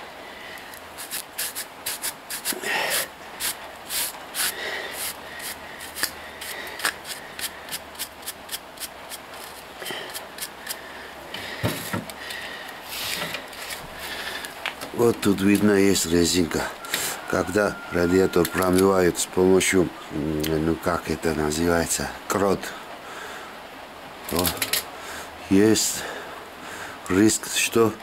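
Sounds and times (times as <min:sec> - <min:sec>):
hand tool scraping metal: 0:01.0 - 0:10.8.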